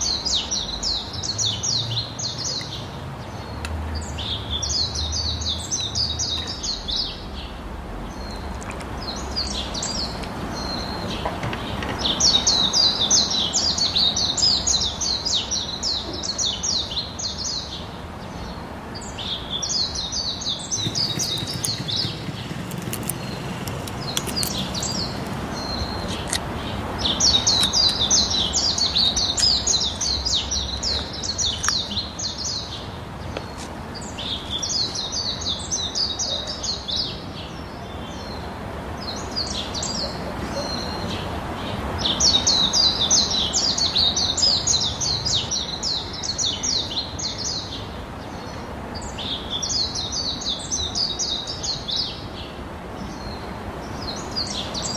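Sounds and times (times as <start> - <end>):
birds chirping: 0.0 - 54.9.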